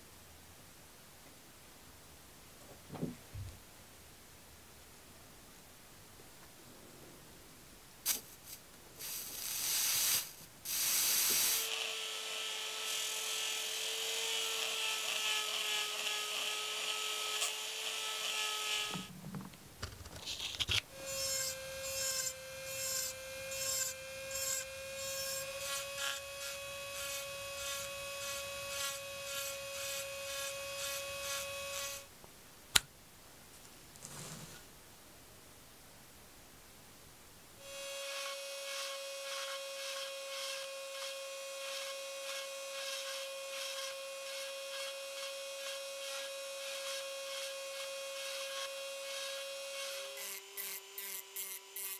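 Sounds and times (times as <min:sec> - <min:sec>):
rotary tool whining: 0:20.4 - 0:32.1.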